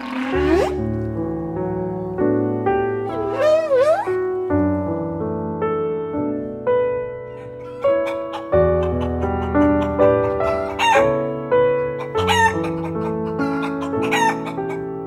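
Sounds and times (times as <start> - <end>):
piano music: 0.0 - 15.0
chicken calls: 7.3 - 15.0.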